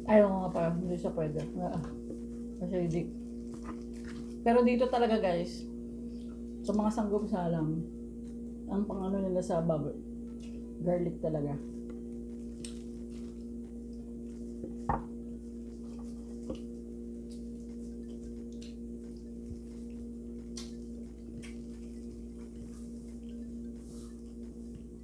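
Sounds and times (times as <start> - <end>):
steady electrical hum: 0.0 - 25.0.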